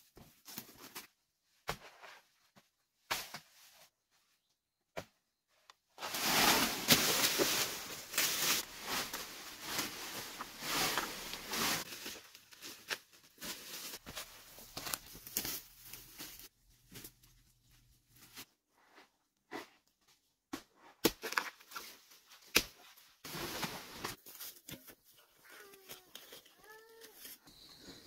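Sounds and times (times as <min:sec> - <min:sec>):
bamboo leaves and twigs rustling: 0:06.0 - 0:18.5.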